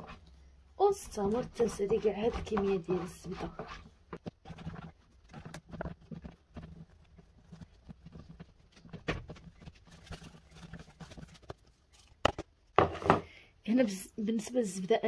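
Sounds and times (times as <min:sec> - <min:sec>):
butter scraping on grater: 0:01.2 - 0:08.4.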